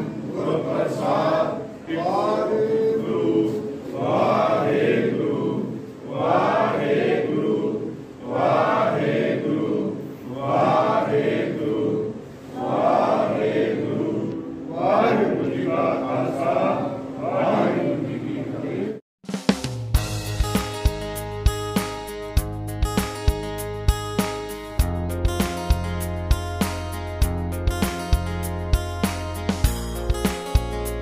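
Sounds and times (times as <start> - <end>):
men chanting a prayer: 0.0 - 19.0.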